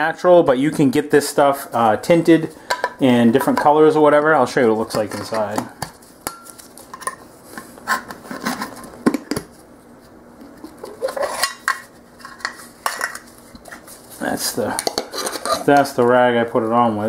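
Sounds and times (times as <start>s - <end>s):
metal lid clicks and scrapes: 14.8s - 15.8s.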